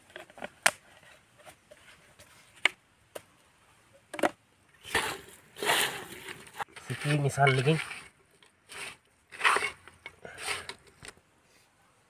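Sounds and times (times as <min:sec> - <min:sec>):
rustling scrapes: 0:04.8 - 0:11.0.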